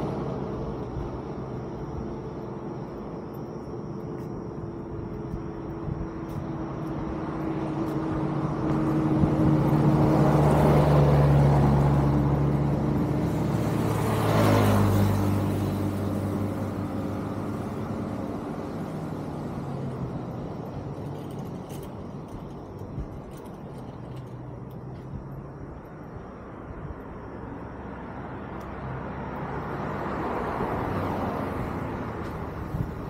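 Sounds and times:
vehicle passing by: 5.2 - 22.5, 27.6 - 33.0.

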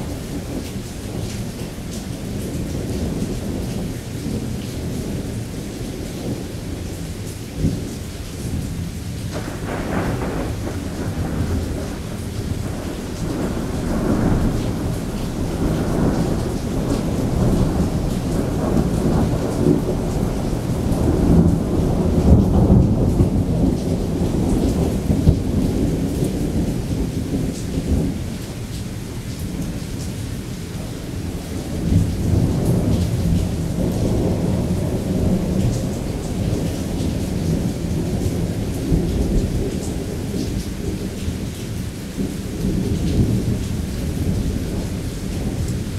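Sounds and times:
rain falling: 0.0 - 45.9
thunder rumbling: 0.0 - 45.9.

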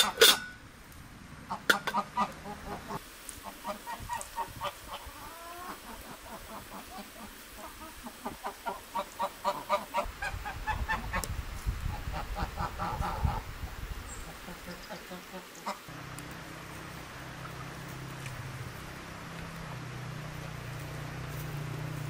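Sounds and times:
geese honking: 1.5 - 11.3.

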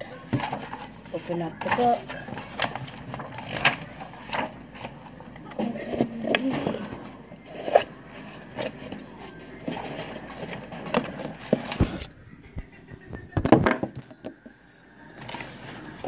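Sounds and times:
objects scraping and knocking on desk: 5.6 - 12.1.

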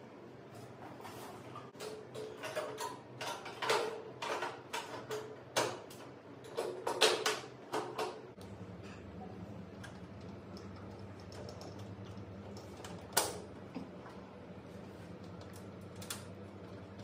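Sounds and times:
steady low hum: 7.6 - 17.0.

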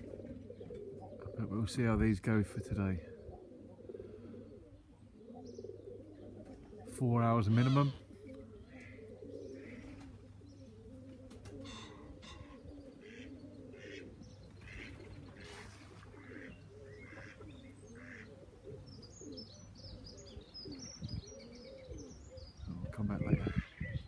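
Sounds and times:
pigeons cooing: 0.0 - 24.0
small birds chirping: 0.0 - 24.0.

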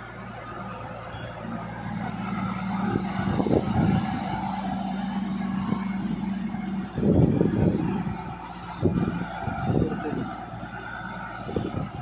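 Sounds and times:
excavator diesel engine under load: 0.0 - 12.0.

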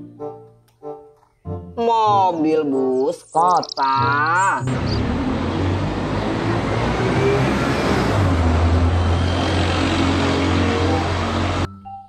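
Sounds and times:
road noise: 3.6 - 11.7
bus engine running: 4.6 - 11.7.

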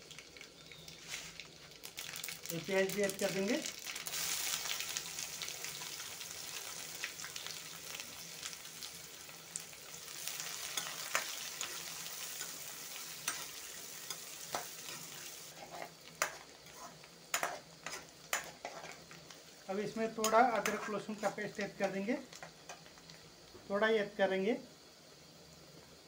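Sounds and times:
onions sizzling in hot oil: 0.0 - 26.0
spatula scraping and clicking on pan: 10.6 - 11.7, 13.2 - 19.3, 20.2 - 23.1.

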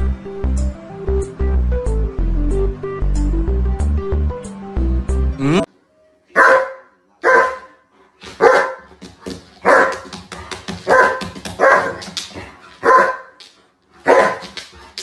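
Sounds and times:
music: 0.0 - 6.4
dog barking: 6.3 - 7.8, 8.4 - 8.9, 9.6 - 10.1, 10.8 - 12.0, 12.8 - 13.4, 14.0 - 14.6.

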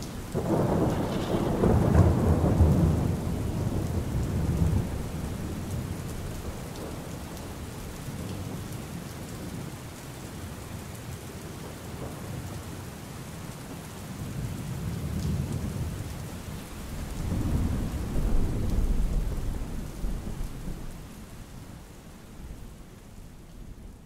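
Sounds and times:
steady rain falling: 0.0 - 24.0
low roll of thunder: 0.2 - 7.4, 14.2 - 24.0.

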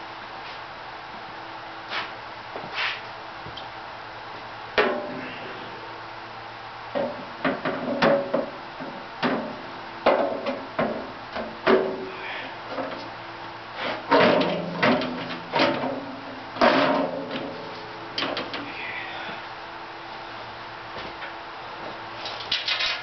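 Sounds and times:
metal hood knocking and clanking: 14.1 - 17.5.

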